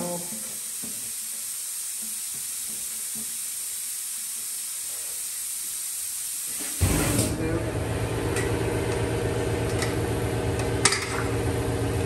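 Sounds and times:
steady high hiss: 0:00.0 - 0:06.8.

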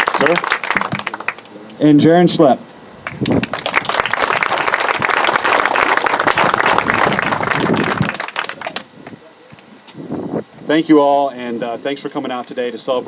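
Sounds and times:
crowd applauding: 0:00.0 - 0:01.5, 0:03.0 - 0:09.2.

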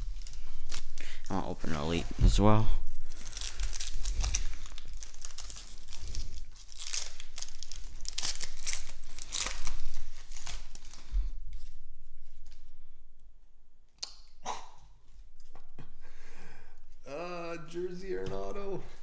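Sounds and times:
plastic wrapper tearing and crinkling: 0:00.0 - 0:02.0, 0:02.8 - 0:11.8.

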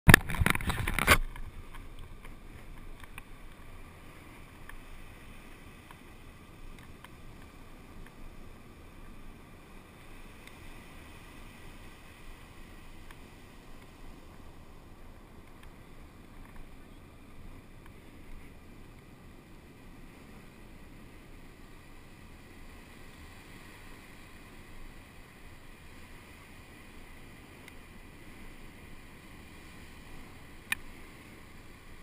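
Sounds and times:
ocean surf breaking: 0:00.1 - 0:32.0
wind rumble on microphone: 0:00.1 - 0:32.0
faint ticks: 0:00.4 - 0:08.3, 0:10.0 - 0:11.4, 0:12.8 - 0:14.5, 0:15.2 - 0:19.2, 0:27.5 - 0:27.9, 0:30.1 - 0:32.0.

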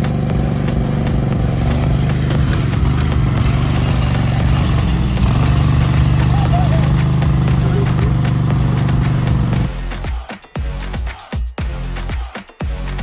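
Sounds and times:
lawn tractor engine running: 0:00.0 - 0:09.7
gravel clattering under tyres: 0:00.8 - 0:09.6.

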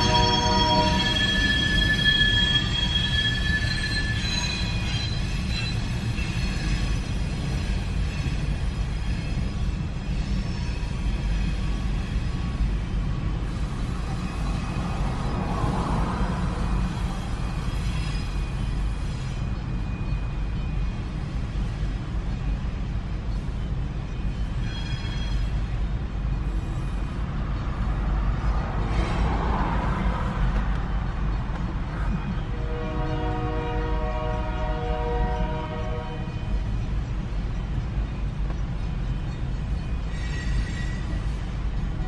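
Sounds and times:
faint high steady tones: 0:00.0 - 0:06.8
train rumble: 0:00.0 - 0:42.0
train wheel squeal: 0:00.0 - 0:42.0.

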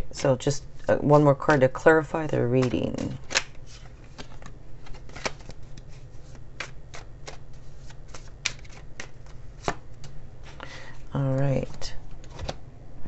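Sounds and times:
cards being shuffled: 0:02.5 - 0:12.6
card snaps: 0:02.6 - 0:05.6, 0:08.1 - 0:10.2.

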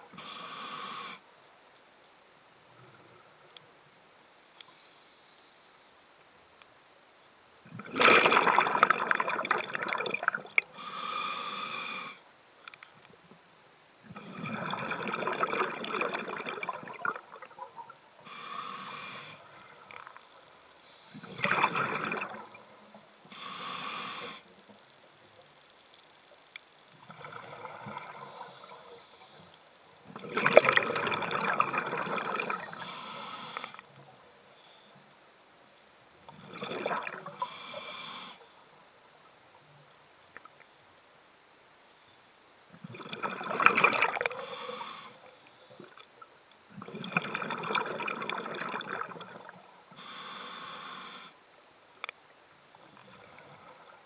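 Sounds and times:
exhaled bubbles: 0:07.7 - 0:10.8, 0:14.1 - 0:18.0, 0:21.1 - 0:22.7, 0:27.0 - 0:28.8, 0:30.1 - 0:33.0, 0:36.3 - 0:37.6, 0:42.8 - 0:44.8, 0:46.7 - 0:49.7
air hissing through regulator: 0:18.2 - 0:19.4, 0:23.3 - 0:24.5.

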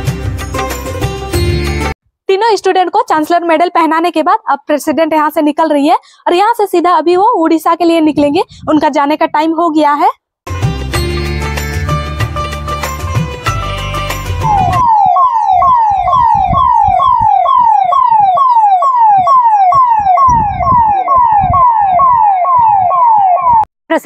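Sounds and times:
music: 0:00.0 - 0:02.0, 0:10.5 - 0:14.8
siren falling wail: 0:14.3 - 0:23.7.

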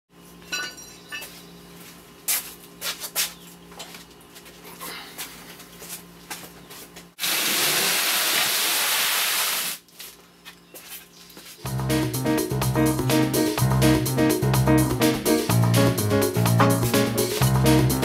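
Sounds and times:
loud steady hiss: 0:07.2 - 0:09.8.

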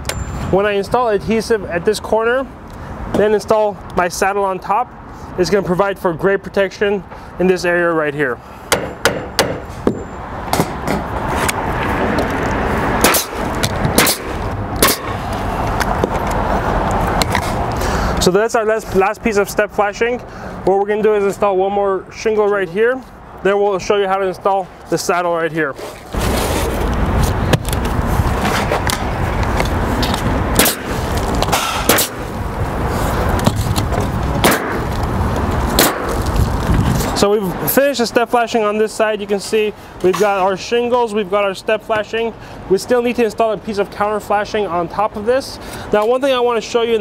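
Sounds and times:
steady background noise: 0:00.0 - 0:47.0
nail gun firing sharp cracks: 0:13.0 - 0:13.4, 0:14.0 - 0:15.2, 0:30.6 - 0:32.2, 0:34.4 - 0:34.8, 0:35.8 - 0:36.2.

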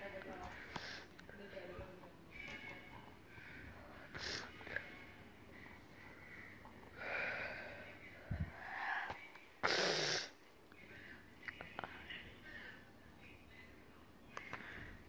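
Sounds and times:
whispering and breathing: 0:03.3 - 0:09.4, 0:10.7 - 0:15.0.

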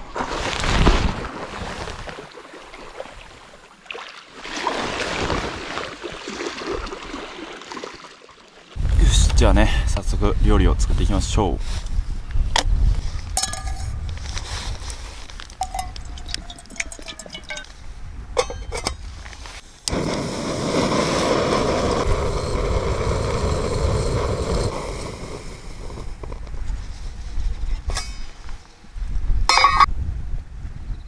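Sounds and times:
metal clinks and knocks: 0:13.4 - 0:13.9, 0:15.6 - 0:17.8, 0:18.4 - 0:19.0
gas burner hissing: 0:19.8 - 0:26.2.

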